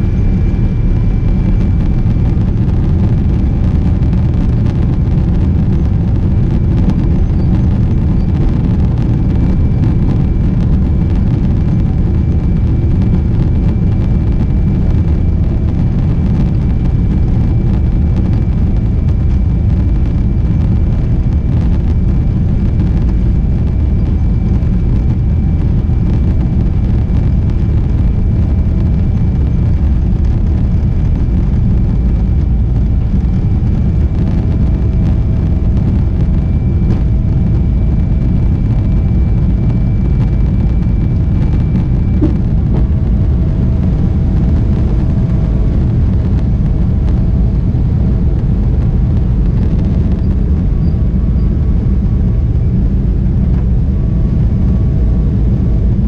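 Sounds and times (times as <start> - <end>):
faint high whine: 0.0 - 56.0
jet engines rumbling: 0.0 - 56.0
wheels rumbling on runway: 0.0 - 56.0.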